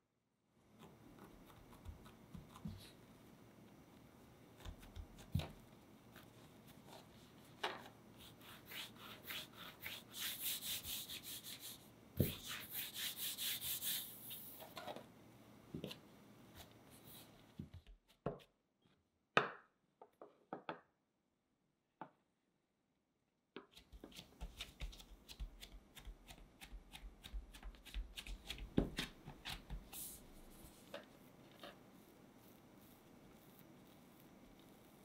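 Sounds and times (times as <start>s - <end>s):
palms rubbing dough on countertop: 8.2s - 14.8s, 23.6s - 35.0s.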